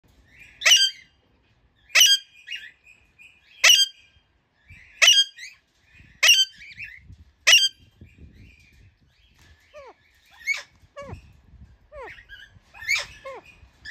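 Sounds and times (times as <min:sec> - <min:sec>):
parakeet harsh screeches: 0:12.0 - 0:13.9.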